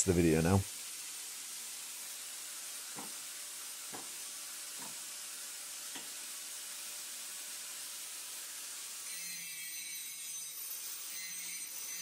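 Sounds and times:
faint steady hiss: 0.0 - 9.1.

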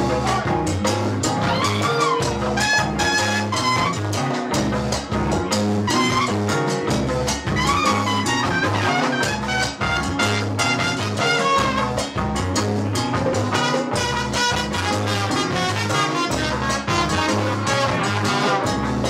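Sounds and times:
drum kit and bass groove: 0.0 - 19.0
percussion: 0.0 - 19.0
baritone saxophone: 1.2 - 4.4, 5.8 - 6.8, 7.5 - 12.2, 13.5 - 19.0
trumpets playing a melody: 1.4 - 4.3, 5.9 - 6.8, 7.5 - 12.2, 13.5 - 19.0.

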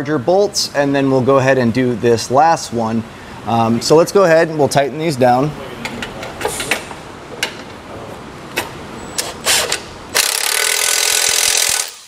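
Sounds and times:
impact wrench running: 9.2 - 12.0.

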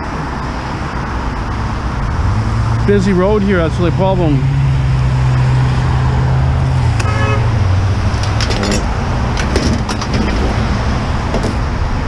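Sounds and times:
vehicle rumble and road traffic: 0.0 - 12.0
sheet metal knocks and scrapes: 8.2 - 11.6.

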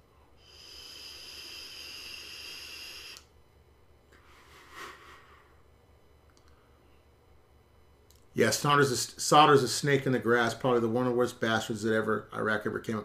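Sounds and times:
breathy exhale: 0.4 - 3.2
vape pen hissing: 0.4 - 3.3.

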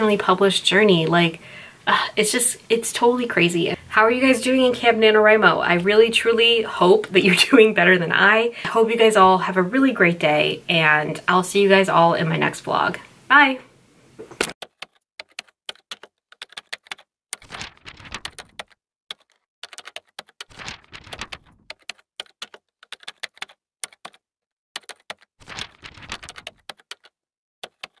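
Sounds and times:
computer keyboard typing: 14.5 - 24.2, 24.8 - 28.0.

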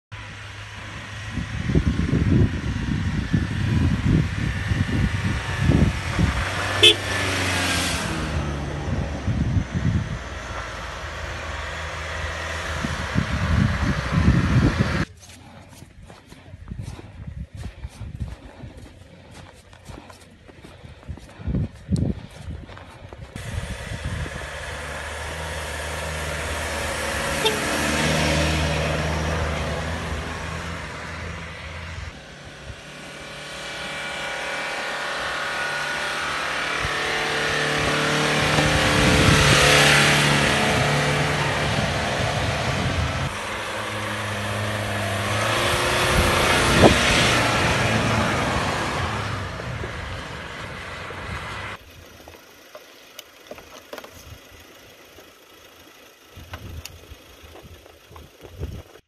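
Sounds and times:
pickup truck engines revving hard: 0.2 - 15.1, 23.4 - 51.8.

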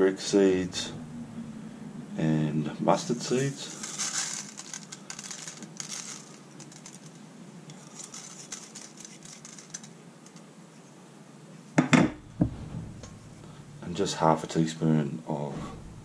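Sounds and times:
seeds crackling in hot oil: 3.3 - 10.5
louder knocks: 11.8 - 13.5.

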